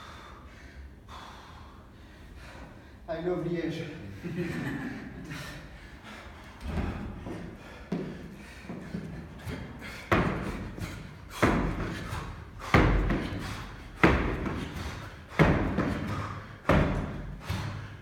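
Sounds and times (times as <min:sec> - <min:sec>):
feet landing on a box: 0:08.8 - 0:17.8.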